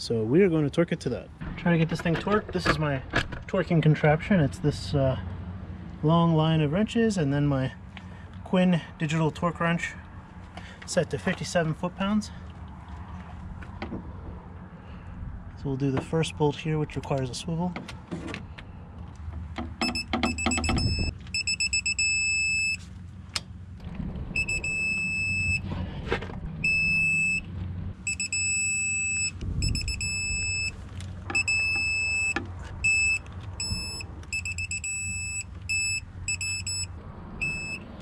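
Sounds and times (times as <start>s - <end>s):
torque wrench beeping: 19.8s - 22.8s, 28.1s - 37.8s.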